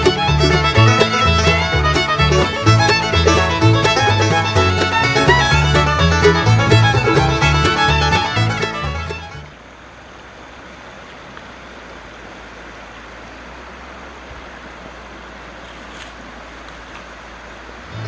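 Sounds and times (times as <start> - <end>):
stream running over rocks: 9.5 - 18.0.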